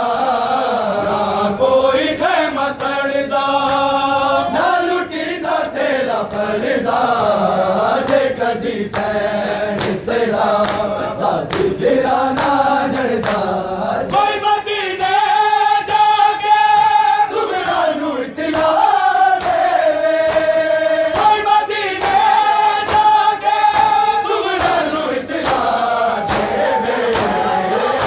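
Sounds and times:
crowd of men chanting: 0.0s - 28.0s
chest-beating slaps: 6.2s - 14.4s, 18.4s - 28.0s.

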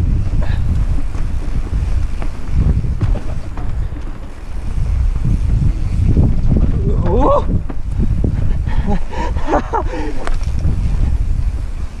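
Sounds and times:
bike knocks and rattles: 0.0s - 12.0s
low rumble: 0.0s - 12.0s
wind rushing over microphone: 0.0s - 12.0s.

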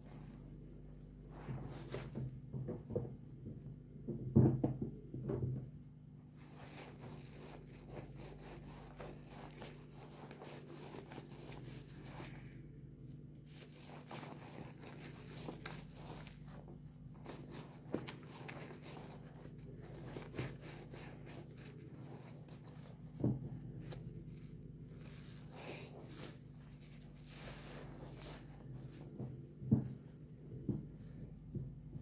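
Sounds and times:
sponge squelching in soapy water: 6.3s - 12.7s, 13.4s - 30.1s.

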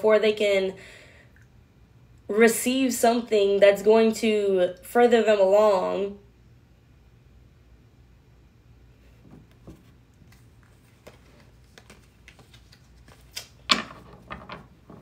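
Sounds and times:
cards clicking and snapping: 11.0s - 13.7s.

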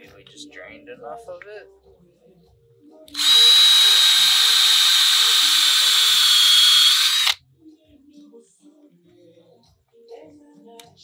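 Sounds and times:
cordless drill whining: 3.1s - 7.4s.

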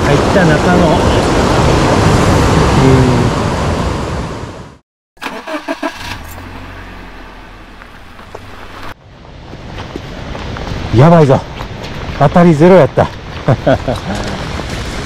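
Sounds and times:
stream rushing loudly: 0.0s - 5.8s.

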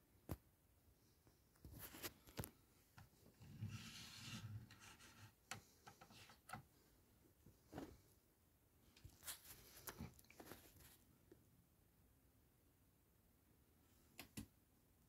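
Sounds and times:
toy rubbing on wooden desk: 3.6s - 5.4s.

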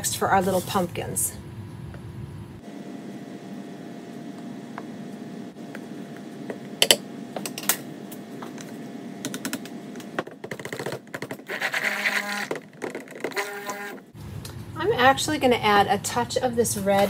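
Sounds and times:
stick blender running: 11.2s - 14.1s.

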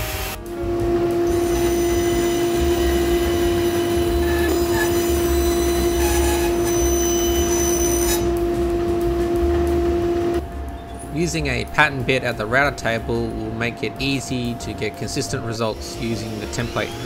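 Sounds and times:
band saw whining: 0.0s - 17.0s
low rumble: 0.4s - 15.4s.

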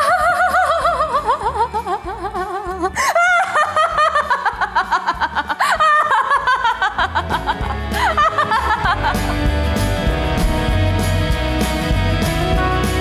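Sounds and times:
woman laughing hysterically: 0.0s - 9.4s.

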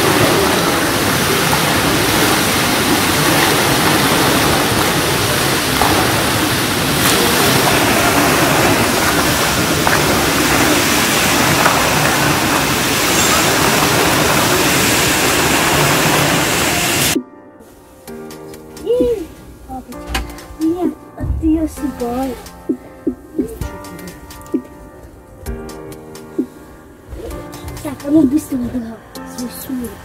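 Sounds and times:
fountain water splashing: 0.0s - 17.2s.

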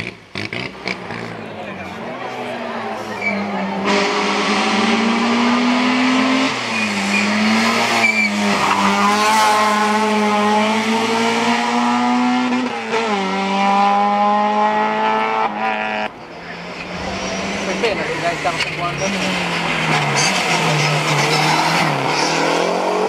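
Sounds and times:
rally car engine at hard throttle: 0.0s - 23.0s.

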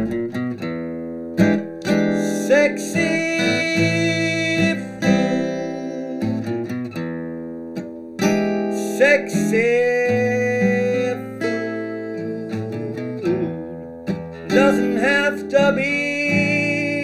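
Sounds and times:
acoustic guitar strumming: 0.0s - 17.0s
man singing: 1.9s - 6.8s, 8.6s - 13.8s, 14.4s - 17.0s.

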